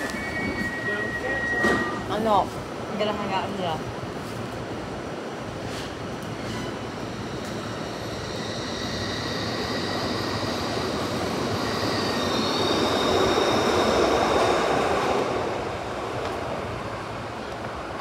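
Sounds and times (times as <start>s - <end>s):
train wheels squealing on rails: 0.0s - 2.4s, 5.6s - 15.2s.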